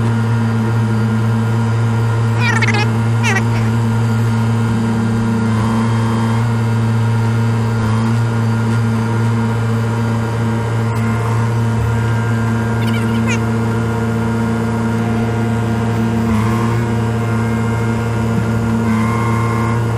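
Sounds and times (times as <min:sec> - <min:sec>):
diesel engine running: 0:00.0 - 0:19.9.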